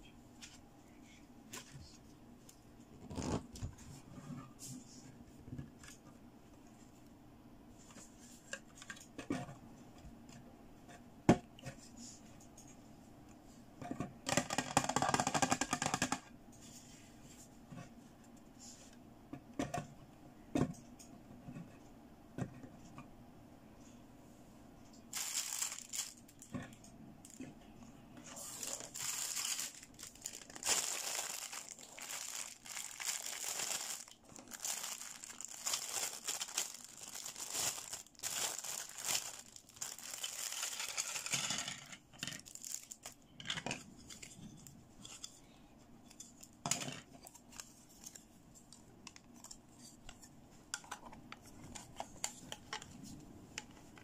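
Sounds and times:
plastic bag crinkling: 25.1 - 26.5, 28.4 - 41.5, 42.2 - 43.2.

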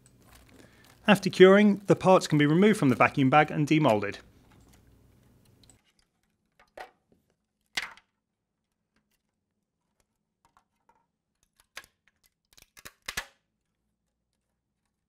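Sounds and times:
plastic film crackling: 0.0 - 4.2.

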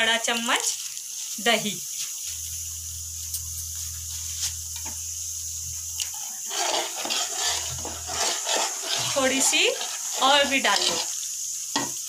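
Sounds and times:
masala sizzling in oil: 0.0 - 12.0
low hum: 2.3 - 6.3
ladle stirring in pot: 6.0 - 11.9.

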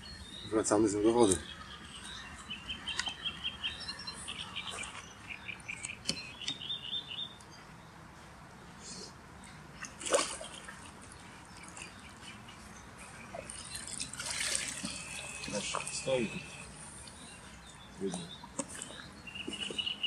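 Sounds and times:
small birds chirping and singing: 0.0 - 8.3, 11.0 - 14.2, 14.9 - 20.0
fish splashing in water: 9.8 - 12.0, 13.4 - 16.7.

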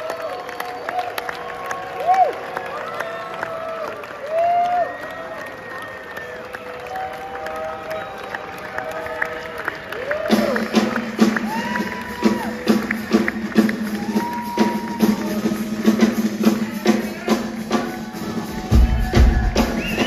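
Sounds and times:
drum kit solo: 10.3 - 20.0.

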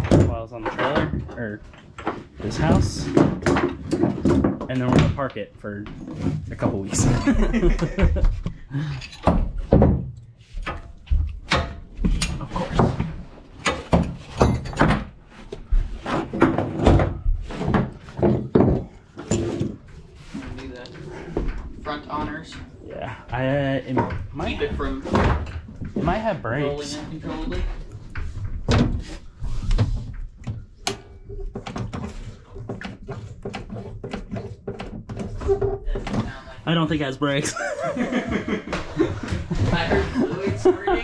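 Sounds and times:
metal hooks clanking on plywood: 13.6 - 15.2.

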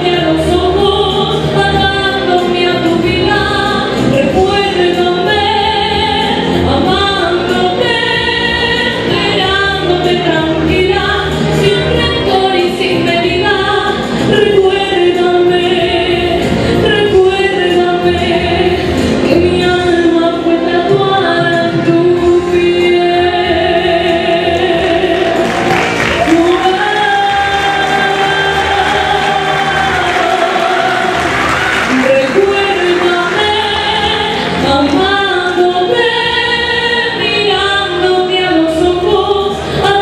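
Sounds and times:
musical accompaniment: 0.0 - 40.0
woman singing into a microphone: 0.0 - 40.0.

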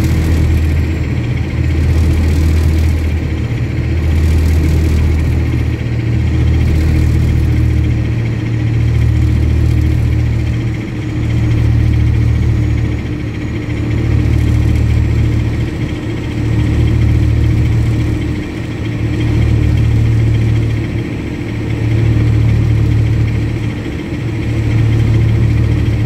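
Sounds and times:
diesel engine idling: 0.0 - 26.0.

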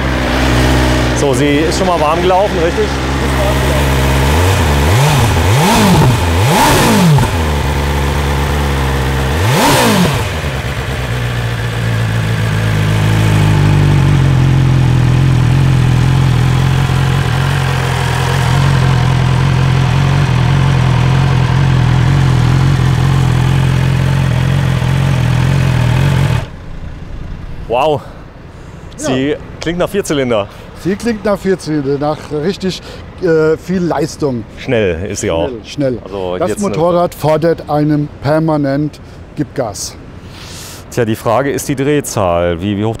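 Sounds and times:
motorcycle engine idling: 0.0 - 29.6
motorcycle engine throttle blips: 0.0 - 29.8.

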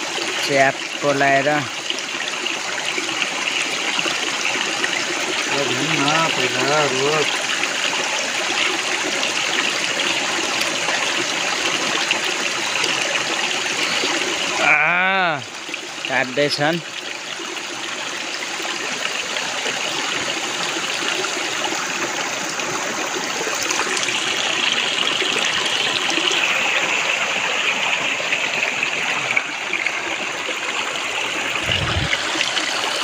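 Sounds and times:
stream running over rocks: 0.0 - 33.0.

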